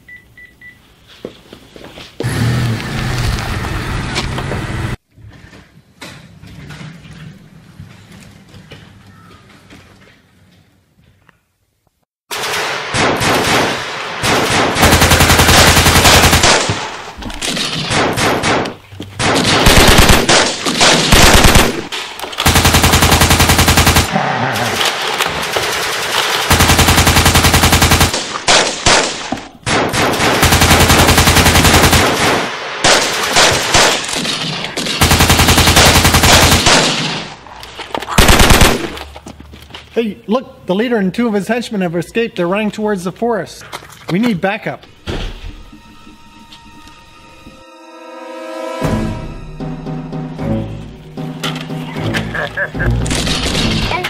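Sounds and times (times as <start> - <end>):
machine-gun fire: 12.3 - 37.4, 38.1 - 39.0.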